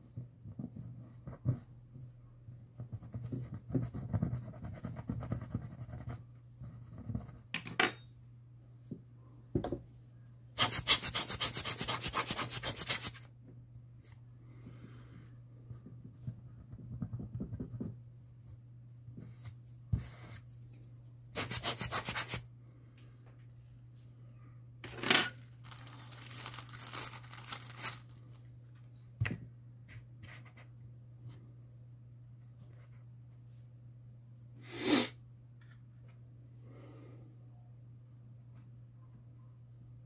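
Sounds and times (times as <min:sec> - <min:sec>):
fast rubbing strokes: 0:10.6 - 0:13.2, 0:21.4 - 0:22.4.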